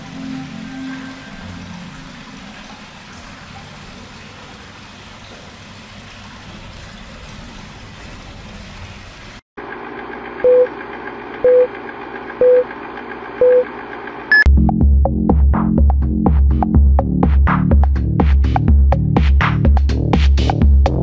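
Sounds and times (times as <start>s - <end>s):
countdown beeps: 11.4s - 11.7s, 12.4s - 12.6s, 13.4s - 13.7s
electronic music with heavy bass: 14.5s - 21.0s.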